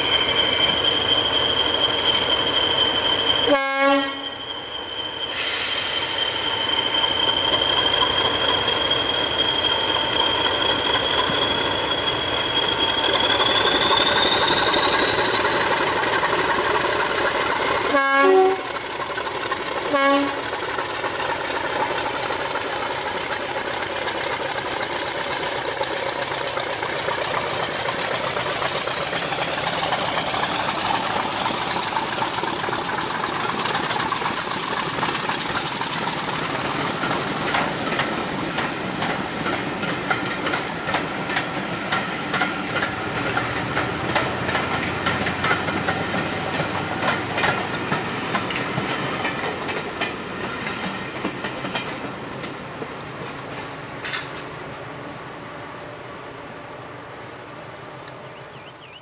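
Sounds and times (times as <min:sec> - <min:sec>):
high turbocharger whistle: 0:00.0 - 0:21.7
diesel locomotive engine: 0:00.0 - 0:59.0
train wheels clattering over rail joints: 0:06.7 - 0:54.6.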